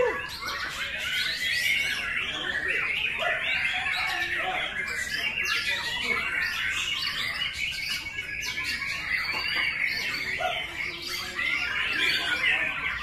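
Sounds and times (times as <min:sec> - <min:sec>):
bird singing chirps and trills: 0:00.0 - 0:13.0.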